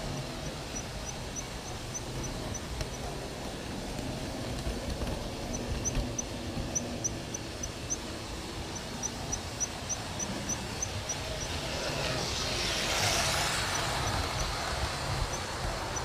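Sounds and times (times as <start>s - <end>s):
model train wheels and motor rumbling: 0.0s - 16.0s.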